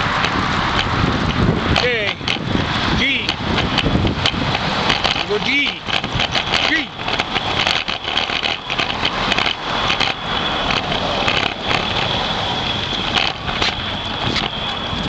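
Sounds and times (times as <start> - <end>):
camera vibration rattling rumble: 0.0 - 15.0
small clicks: 3.2 - 12.2, 12.9 - 14.8.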